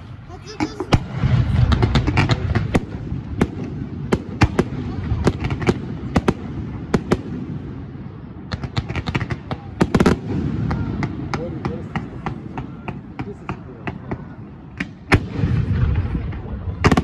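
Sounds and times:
fireworks bangs and crackling: 0:00.0 - 0:17.0.

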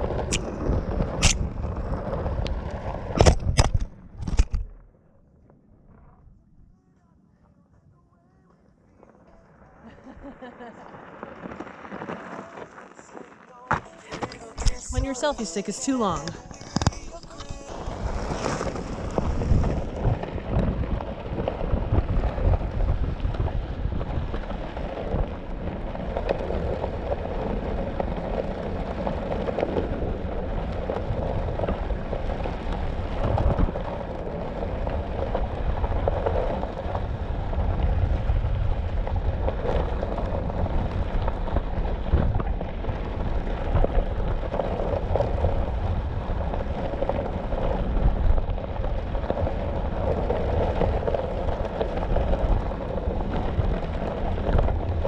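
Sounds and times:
tyre rolling over gravel: 0:00.0 - 0:03.3, 0:08.3 - 0:55.0.

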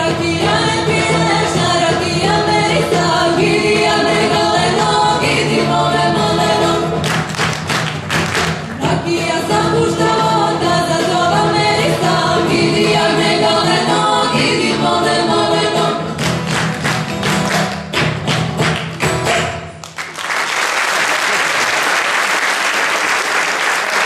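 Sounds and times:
folk singers with instruments: 0:00.0 - 0:17.8
audience applauding: 0:07.0 - 0:08.7, 0:16.2 - 0:24.0.

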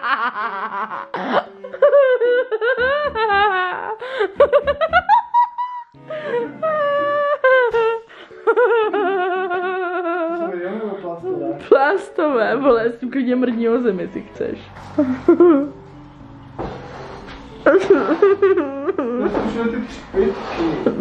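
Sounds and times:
high-pitched laughter: 0:17.7 - 0:19.3.

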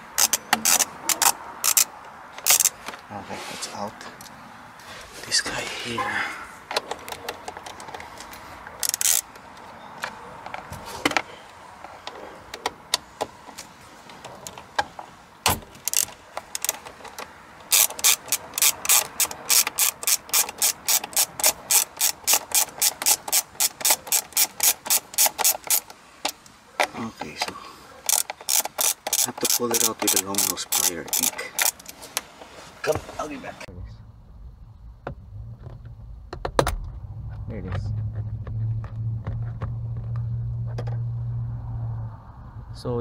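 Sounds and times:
socket ratchet clicking: 0:00.1 - 0:02.8, 0:08.8 - 0:09.4, 0:15.8 - 0:26.5, 0:28.0 - 0:32.0.

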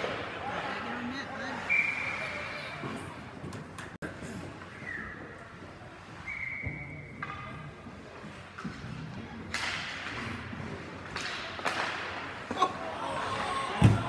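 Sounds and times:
whistle tone: 0:01.7 - 0:02.4, 0:06.2 - 0:07.1.

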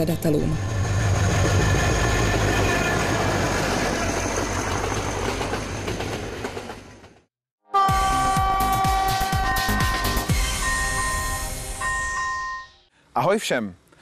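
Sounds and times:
diesel train passing: 0:00.0 - 0:07.3.

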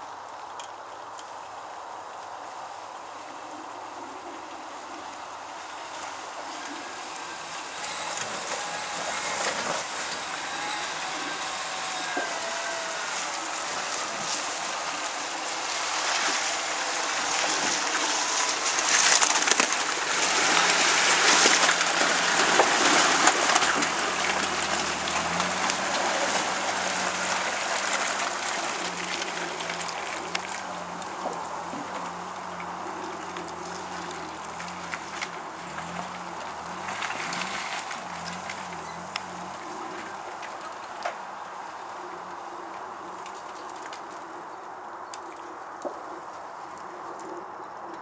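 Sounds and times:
truck engine: 0:03.4 - 0:41.8
tyres splashing through puddle: 0:04.2 - 0:42.5.

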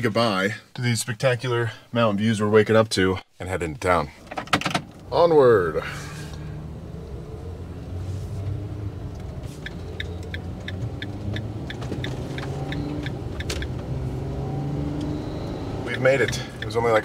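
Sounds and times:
engine and road rumble: 0:04.1 - 0:17.0
turn signal ticking: 0:06.3 - 0:17.0.

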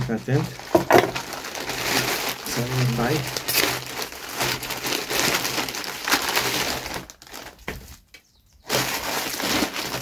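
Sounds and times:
packaging crinkling being torn: 0:00.0 - 0:08.0, 0:08.7 - 0:10.0.

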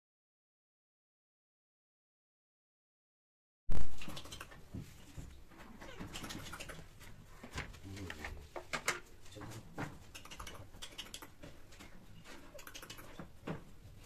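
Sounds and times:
cat paws clicking on tiled floor: 0:03.8 - 0:14.0.

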